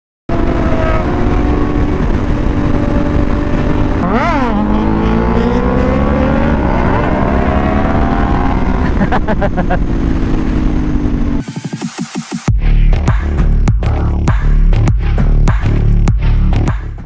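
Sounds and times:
motorcycle engine revving: 0.3s - 11.4s.

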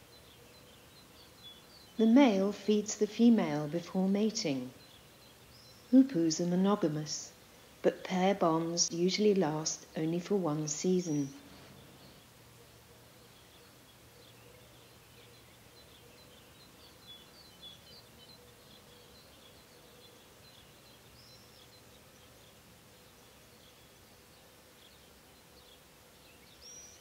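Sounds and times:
faint steady hum: 0.0s - 27.0s
small birds chirping: 0.0s - 27.0s.

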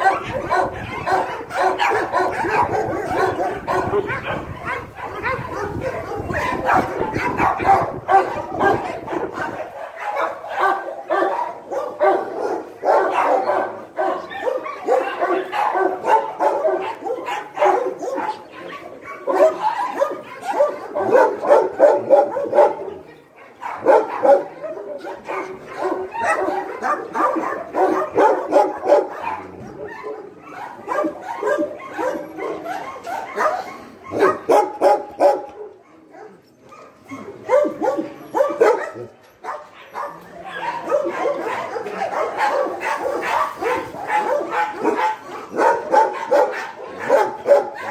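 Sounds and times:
dogs barking and yipping: 0.0s - 47.9s.

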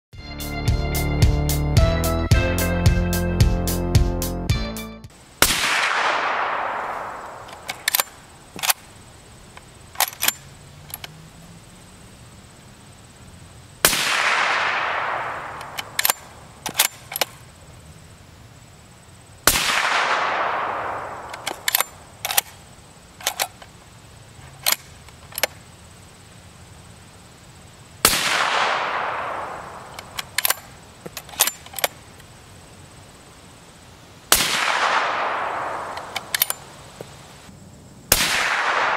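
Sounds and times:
suppressed rifle shots with echo: 5.4s - 8.9s, 13.8s - 17.4s, 19.4s - 22.6s, 28.0s - 32.0s, 34.3s - 36.8s, 38.1s - 38.9s
rifle bolt clicking: 7.3s - 8.8s, 10.0s - 11.2s, 15.5s - 17.3s, 21.2s - 22.6s, 23.2s - 23.6s, 29.9s - 32.0s, 35.9s - 36.6s.

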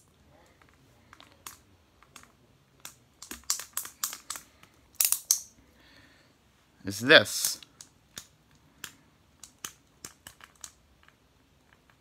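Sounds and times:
plastic action figure clicks: 1.2s - 4.4s.

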